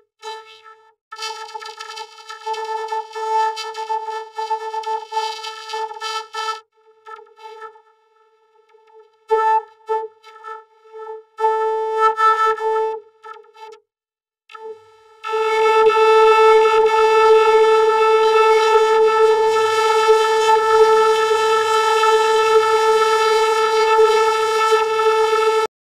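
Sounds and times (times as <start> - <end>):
vocoded synthesizer tone: 1.2 - 6.6, 14.6 - 25.7.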